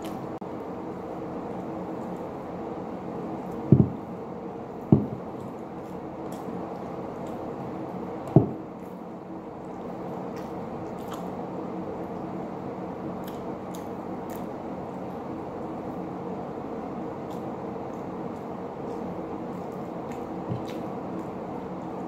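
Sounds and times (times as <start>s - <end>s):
chewing and lip-smacking: 0.0s - 0.3s, 4.7s - 12.3s, 13.2s - 15.2s, 17.2s - 22.0s
steady low hum: 0.0s - 22.0s
dull thumps: 3.6s - 4.0s, 4.9s - 5.4s, 8.3s - 8.7s.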